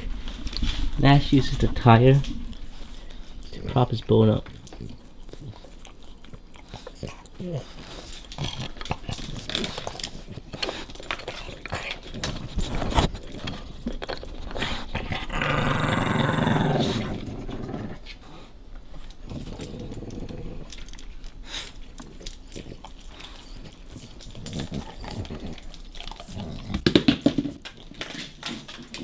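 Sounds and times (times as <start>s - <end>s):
dog gnawing a bone: 0.0s - 17.8s, 18.9s - 29.0s
dog growling: 3.5s - 18.5s, 19.2s - 21.0s, 22.0s - 27.2s.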